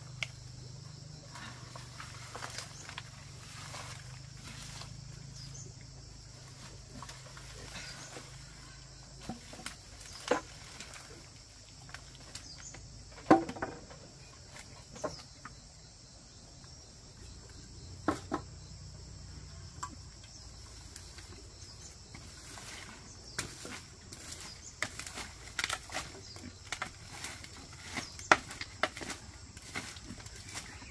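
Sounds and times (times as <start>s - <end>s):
high insect chirring: 0.0s - 13.2s.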